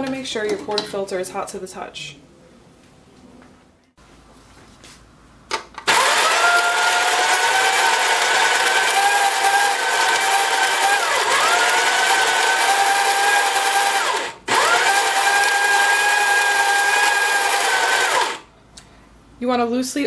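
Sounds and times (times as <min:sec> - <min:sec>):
coffee grinder motor whining: 0:05.9 - 0:18.5.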